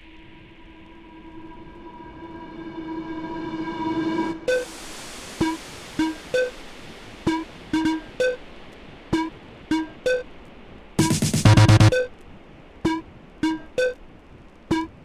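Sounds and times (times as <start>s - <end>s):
electronic music with synth notes: 4.4s - 4.7s, 5.4s - 6.6s, 7.3s - 8.4s, 9.2s - 10.2s, 11.0s - 12.1s, 12.9s - 14.0s, 14.7s - 15.0s.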